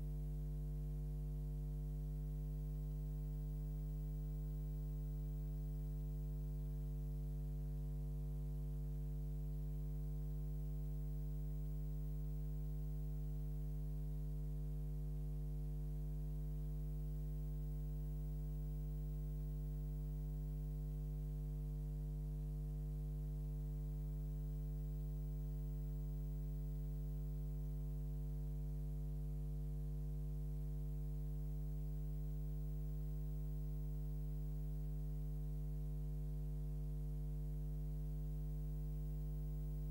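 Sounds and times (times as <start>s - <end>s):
electrical mains hum: 30.9s - 39.9s.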